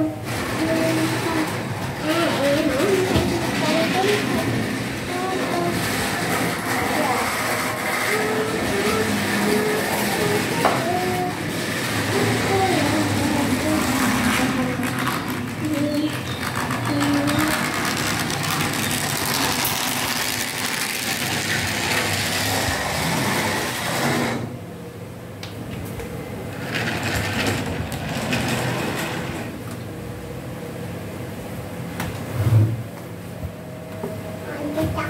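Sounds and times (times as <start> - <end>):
wheels clattering over rails: 0.0 - 24.4, 26.5 - 29.7.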